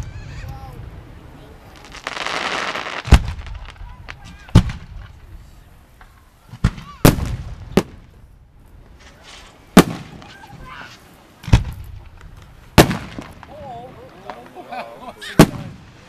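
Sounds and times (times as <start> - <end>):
firework shells booming: 1.7 - 5.4, 6.0 - 8.2, 9.1 - 10.7, 11.4 - 14.6, 15.3 - 16.0.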